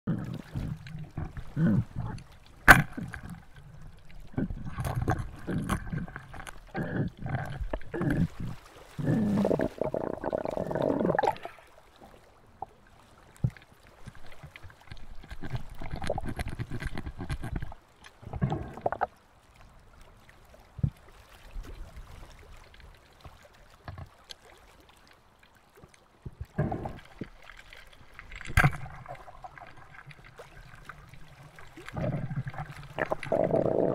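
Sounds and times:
muffled underwater gurgling: 0.1 - 11.6, 15.0 - 19.2, 26.3 - 27.3, 28.3 - 33.9
knocks and scrapes: 14.9 - 17.8.

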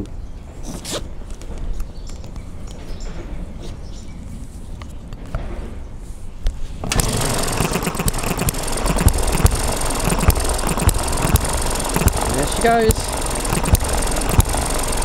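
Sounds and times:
engine firing pops: 6.8 - 15.0
small petrol engine clattering: 6.8 - 15.0.

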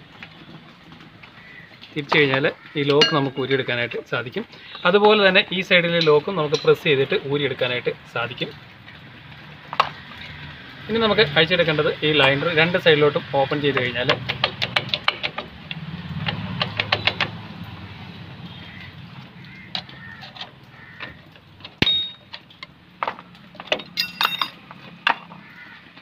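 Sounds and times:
metallic ping: 3.0 - 3.4, 21.8 - 22.3
metal ringing jangle: 21.8 - 22.3, 23.8 - 24.6
metal brake parts clicking: 23.6 - 25.2.

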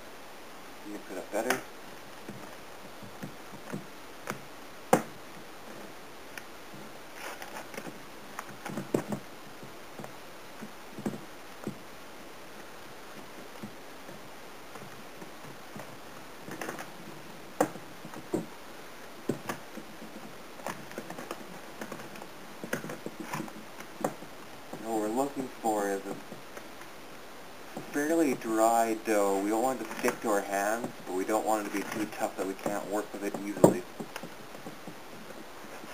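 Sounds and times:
hands kneading dough in bowl: 27.6 - 35.9.

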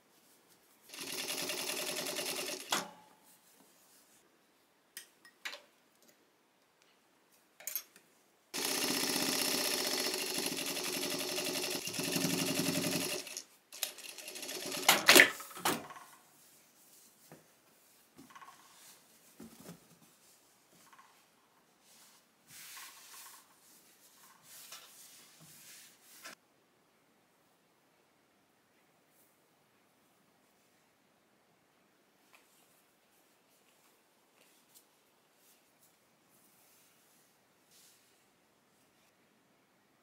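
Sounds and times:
sewing machine stitching: 0.9 - 2.9, 8.6 - 15.4.

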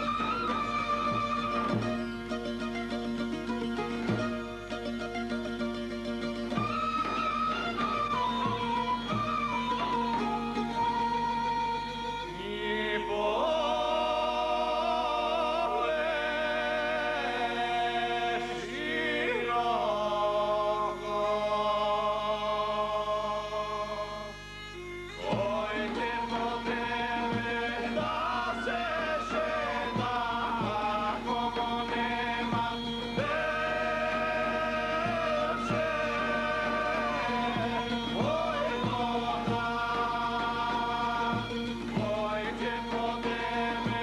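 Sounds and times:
folk band accompaniment: 0.0 - 44.0
men singing folk song: 6.5 - 24.3, 25.2 - 44.0
regular drum beat: 34.4 - 44.0.

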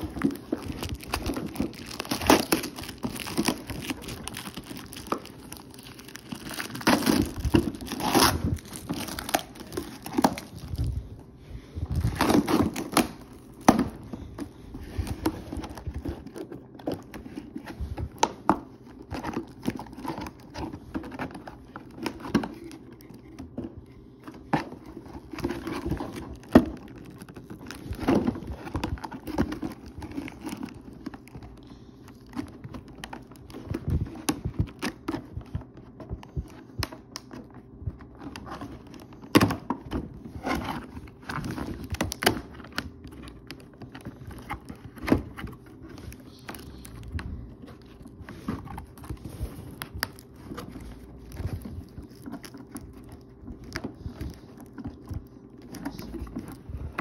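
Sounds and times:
plastic packaging crinkling: 0.0 - 57.0
cardboard box being handled: 37.7 - 57.0.

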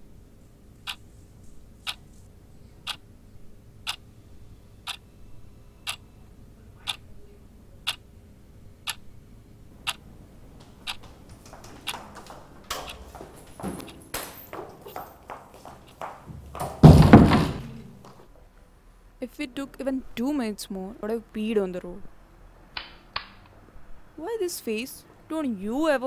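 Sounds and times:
clock ticking: 9.8 - 10.0, 10.8 - 13.1
door opening knocks and clicks: 10.6 - 14.8, 16.4 - 17.8.

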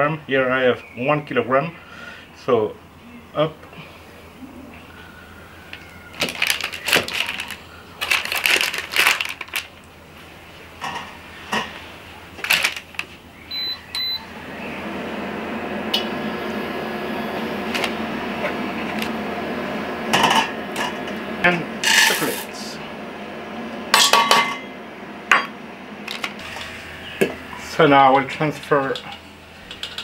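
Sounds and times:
electric hob hum: 0.0 - 30.0
spatula clattering in metal pot: 29.7 - 30.0.

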